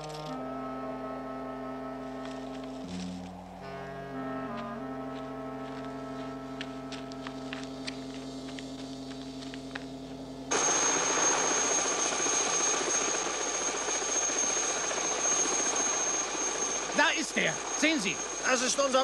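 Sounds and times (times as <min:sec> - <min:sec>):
low brass chord: 0:00.3 - 0:08.2
thin high whine: 0:06.0 - 0:19.0
helicopter engine and rotor noise: 0:06.2 - 0:19.0.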